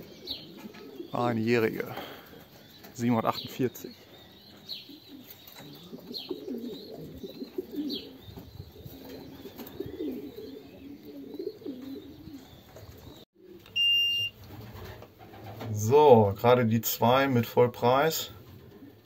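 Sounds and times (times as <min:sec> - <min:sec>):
high falling bird chirps: 0:00.0 - 0:13.3
pigeons cooing: 0:00.0 - 0:13.6, 0:18.2 - 0:19.0.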